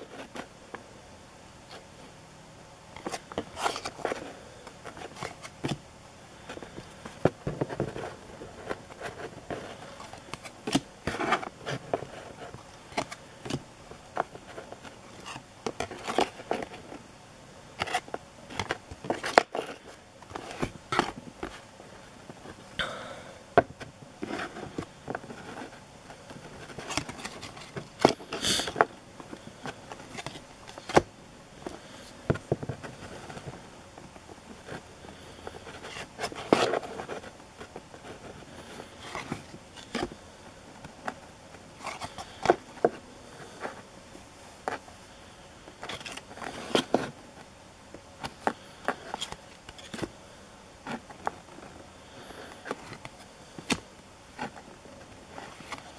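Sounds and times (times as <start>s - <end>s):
cards clicking and sliding: 3.0s - 5.8s, 24.2s - 33.6s.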